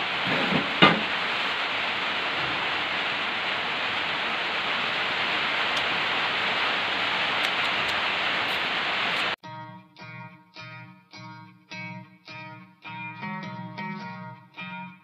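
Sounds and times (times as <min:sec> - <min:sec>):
rain hissing: 0:00.0 - 0:09.4
guitar music: 0:09.4 - 0:15.0.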